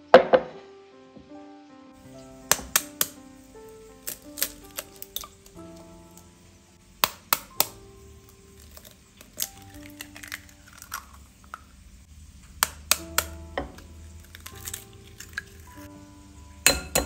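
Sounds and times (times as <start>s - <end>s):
background music: 0.0s - 11.8s, 12.5s - 17.0s
eggs tapped to crack: 2.5s - 3.2s, 4.0s - 6.2s, 7.0s - 11.7s, 12.4s - 15.7s.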